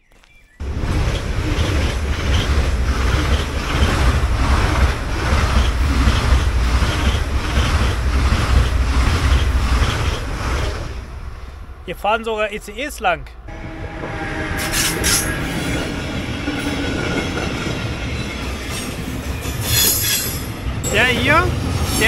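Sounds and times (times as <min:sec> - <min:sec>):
high-speed train passing: 0:00.6 - 0:22.0.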